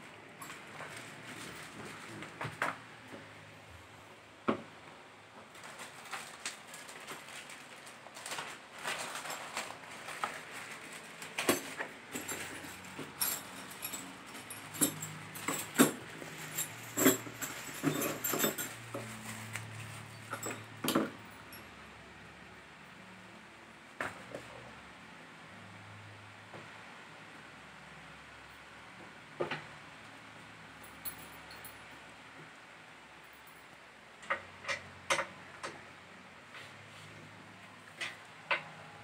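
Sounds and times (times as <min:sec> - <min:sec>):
plastic bags crinkling: 0:05.5 - 0:20.4.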